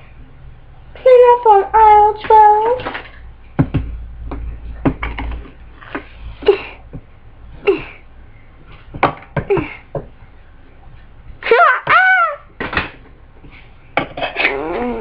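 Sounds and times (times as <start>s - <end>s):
taps and knocks of handled doll: 3.6s - 6.0s, 9.0s - 10.1s.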